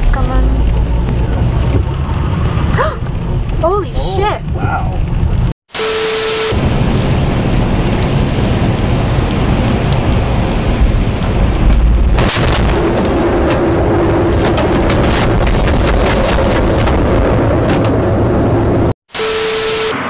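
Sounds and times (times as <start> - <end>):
heavy rain on a car roof: 0.0 - 19.8
low rumble of thunder: 6.6 - 18.9.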